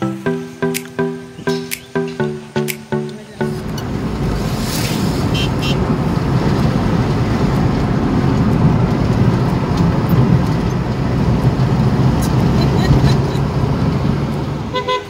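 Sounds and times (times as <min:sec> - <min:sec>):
short ticks: 0:00.6 - 0:03.2
car engine and tyre rumble: 0:03.5 - 0:15.0.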